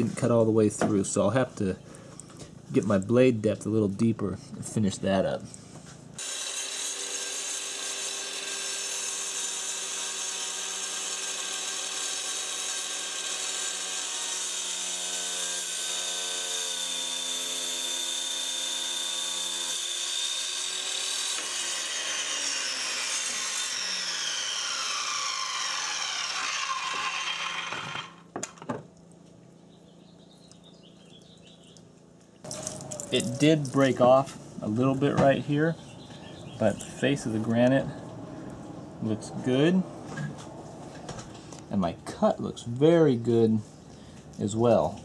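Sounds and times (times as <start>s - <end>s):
circular saw cutting stone: 6.2s - 28.3s.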